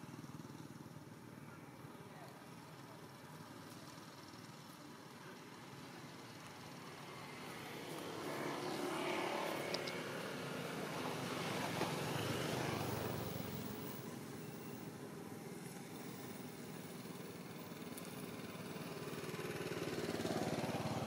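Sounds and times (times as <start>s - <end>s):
passing vehicle engine: 5.6s - 21.0s.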